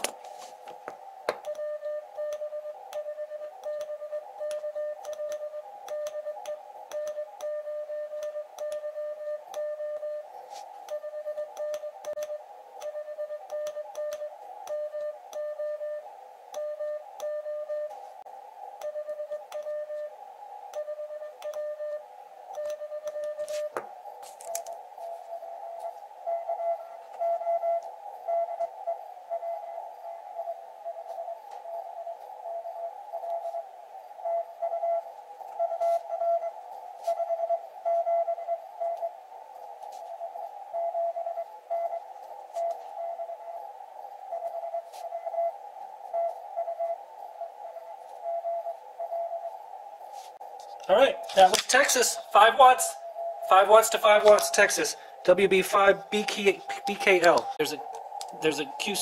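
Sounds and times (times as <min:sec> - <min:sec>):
receiver hiss: 0:00.0 - 0:59.0
morse code tone: 0:01.3 - 0:18.0, 0:50.9 - 0:59.0.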